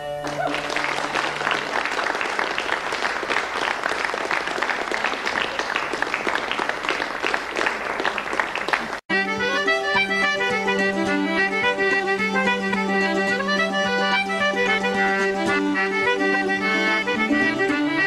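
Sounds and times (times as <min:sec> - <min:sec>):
fiddle tune: 0:00.0 - 0:03.2, 0:09.1 - 0:18.0
audience applauding: 0:00.0 - 0:09.1.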